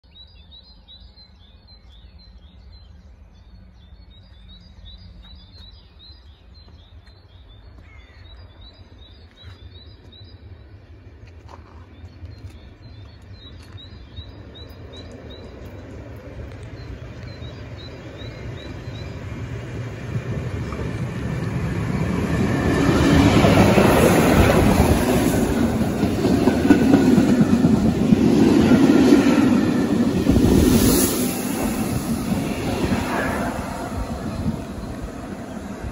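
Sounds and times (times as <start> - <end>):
steam train passing: 12.8 - 35.9.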